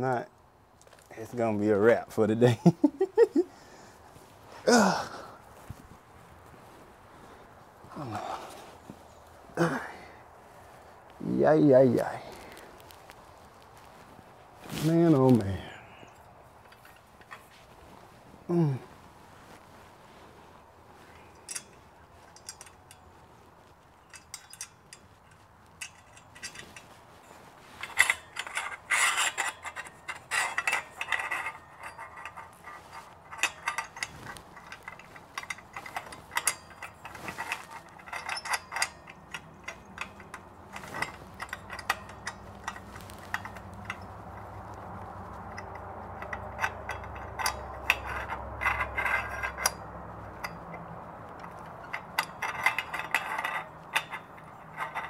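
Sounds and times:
low steady hum: 0.0 - 55.0
metal clinks: 21.0 - 55.0
ratchet wrench clicking: 27.8 - 50.8, 51.4 - 55.0.

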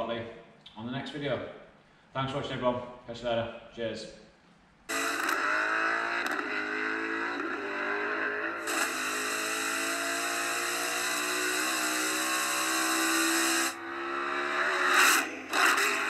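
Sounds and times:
race car engine: 4.9 - 16.0.

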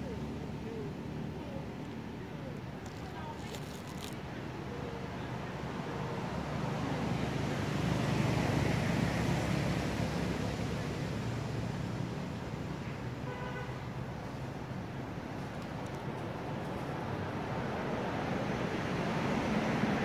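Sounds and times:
road vehicle passing: 5.8 - 20.0.

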